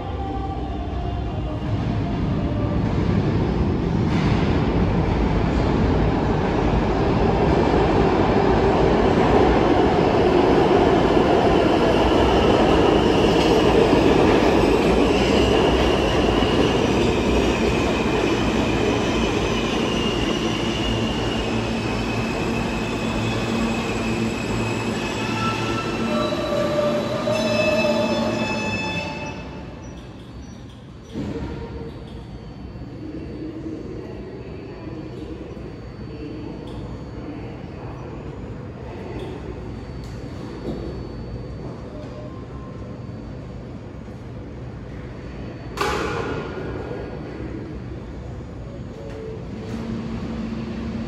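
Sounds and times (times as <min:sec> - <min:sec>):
subway train wheels rumbling: 0:00.0 - 0:51.0
high-pitched wheel squeal: 0:19.8 - 0:30.0.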